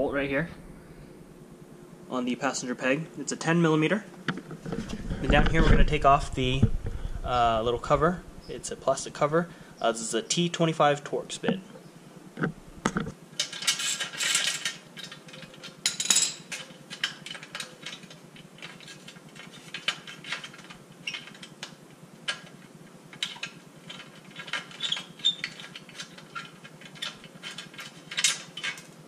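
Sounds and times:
metal tools clinking: 13.4 - 21.4.

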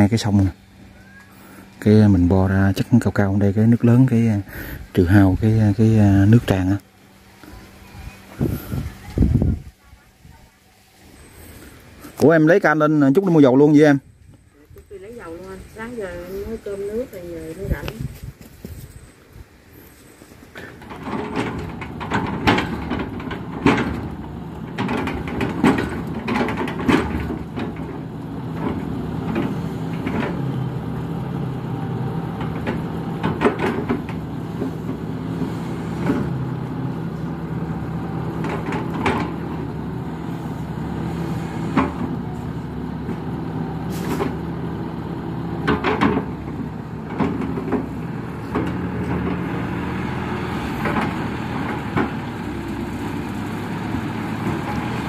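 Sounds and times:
excavator diesel engine running: 0.0 - 55.0
bucket clanks and knocks: 20.6 - 30.4, 32.4 - 34.8, 38.4 - 39.5, 45.5 - 49.4.

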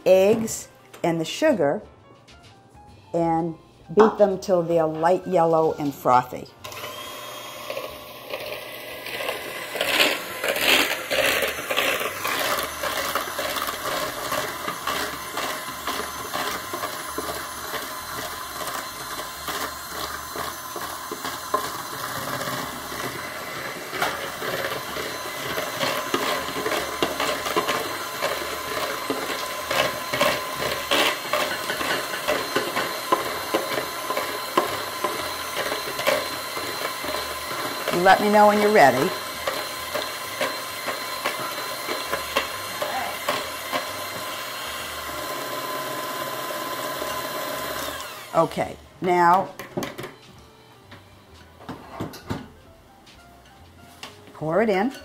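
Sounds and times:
electric mixer running: 6.6 - 50.0.

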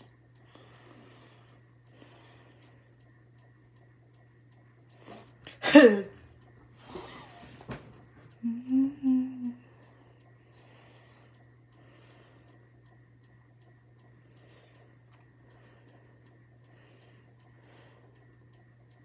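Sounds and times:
person breathing: 0.0 - 3.0, 9.4 - 12.8, 14.2 - 18.4
faint low hum: 0.0 - 19.0
person humming: 8.4 - 9.7.

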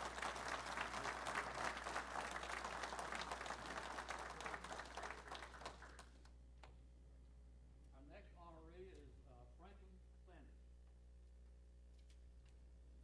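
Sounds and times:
people applauding: 0.0 - 6.3.

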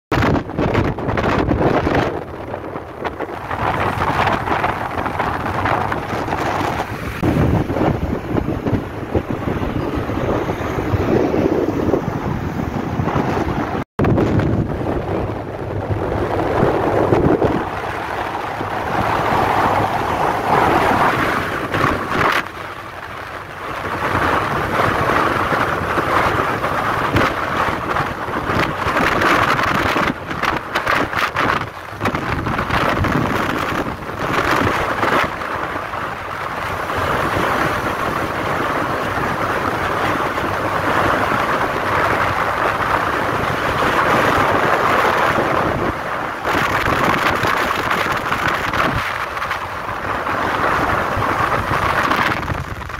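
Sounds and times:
car road noise at speed: 0.1 - 52.9
wind buffeting microphone: 0.1 - 52.9.

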